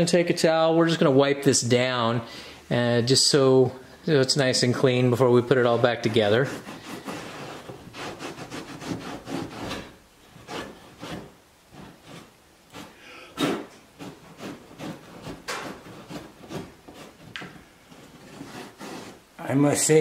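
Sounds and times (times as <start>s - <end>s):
towel rubbing car wheel well: 6.3s - 17.3s, 17.9s - 19.2s.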